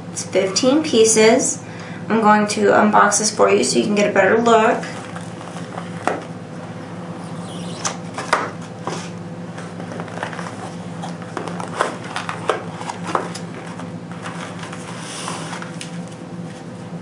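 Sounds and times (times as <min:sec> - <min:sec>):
steady low hum: 0:00.0 - 0:17.0
cardboard box being opened: 0:04.9 - 0:06.3, 0:09.6 - 0:16.0.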